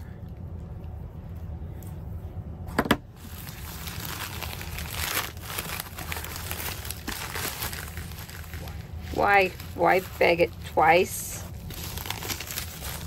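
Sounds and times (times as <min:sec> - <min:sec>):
plastic crinkling and rustling: 0:03.0 - 0:13.0.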